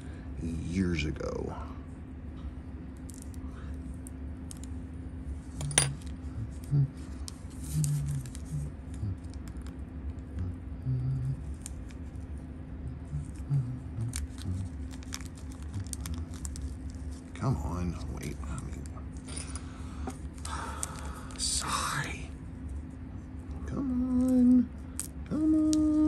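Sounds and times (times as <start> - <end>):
plastic packet crinkling: 14.1 - 17.3.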